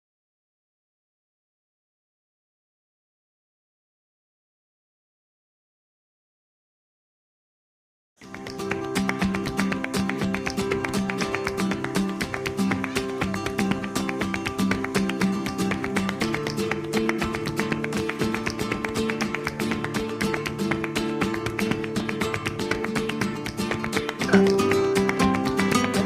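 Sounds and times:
guitar background music: 0:08.2 - 0:26.0.

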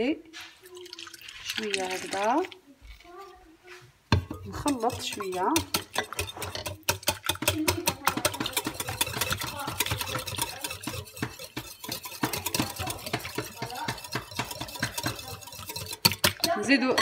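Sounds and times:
whisk clicking against glass bowl: 0:04.2 - 0:17.0.

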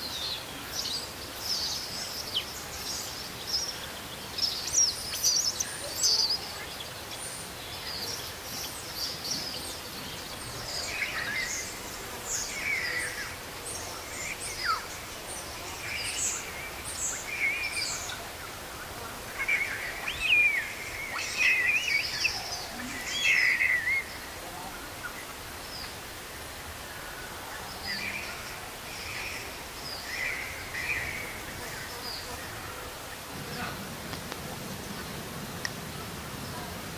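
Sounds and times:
outdoor background hiss: 0:00.0 - 0:36.9
high chirps and whistled calls: 0:19.3 - 0:24.2.

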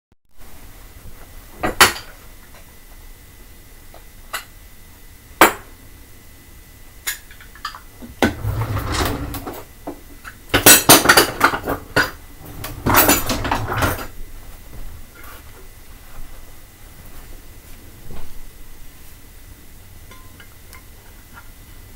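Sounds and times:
dishes clinking and clattering: 0:10.6 - 0:14.1.

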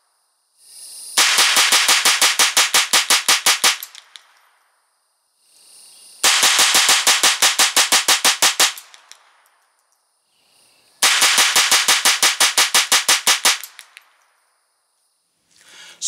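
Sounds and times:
rapid rifle gunshots: 0:01.2 - 0:04.0, 0:06.2 - 0:09.0, 0:11.0 - 0:13.9.

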